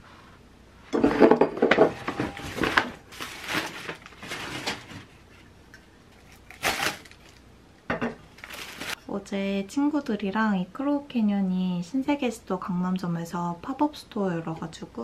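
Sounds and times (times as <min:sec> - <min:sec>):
packing paper rustling: 0:02.2 - 0:05.2, 0:06.2 - 0:07.4, 0:08.3 - 0:09.0.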